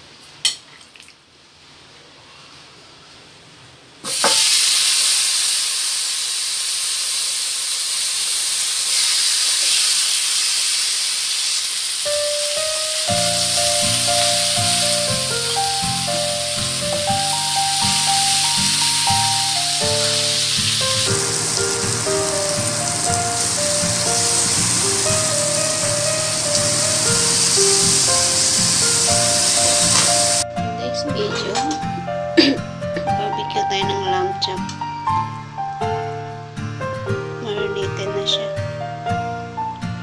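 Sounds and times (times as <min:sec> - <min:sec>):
meat sizzling on grill pan: 0:04.1 - 0:30.4
background music: 0:12.1 - 0:40.0.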